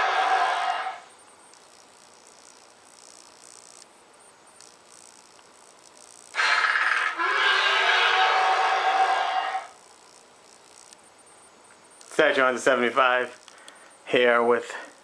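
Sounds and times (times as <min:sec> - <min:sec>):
loud rattling trill: 0:06.3 - 0:09.7.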